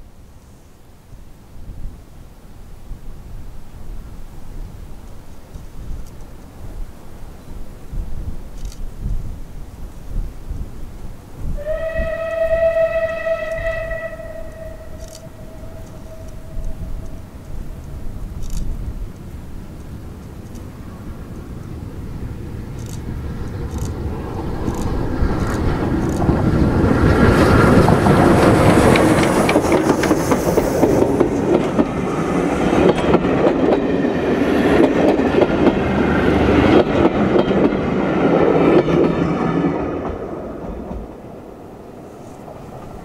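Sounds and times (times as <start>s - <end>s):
steam locomotive passing: 3.5s - 43.0s
train wheels clattering over rail joints: 22.6s - 41.3s.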